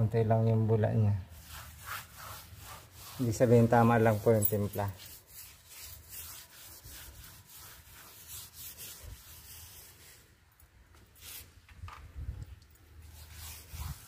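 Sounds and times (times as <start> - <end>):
paintbrush scrubbing tiles: 1.3 - 10.3, 13.0 - 14.0.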